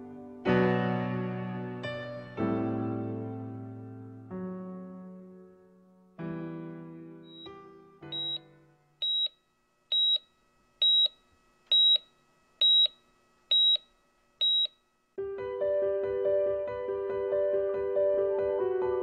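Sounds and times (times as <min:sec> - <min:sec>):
piano-led music with steady beat: 0:00.0 - 0:08.6, 0:15.2 - 0:19.0
heart-rate monitor beeping: 0:07.3 - 0:07.5, 0:08.1 - 0:14.8.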